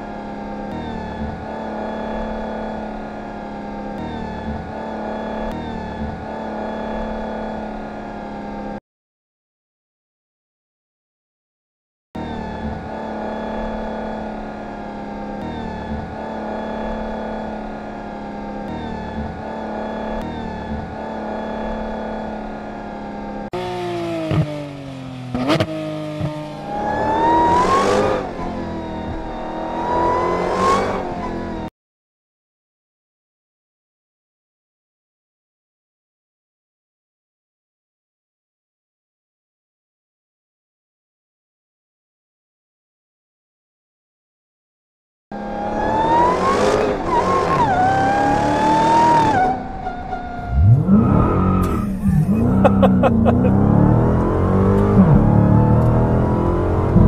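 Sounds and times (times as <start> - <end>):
sports car engine running: 12.2 - 30.6, 47.8 - 57.0.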